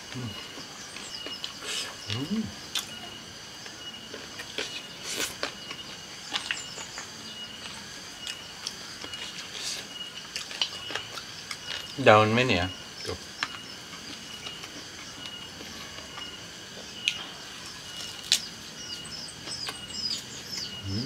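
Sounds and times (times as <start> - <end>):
insect trill: 0.0 - 21.0
chewing and crunching vegetables: 0.1 - 12.1, 13.0 - 21.0
person humming: 2.1 - 2.6.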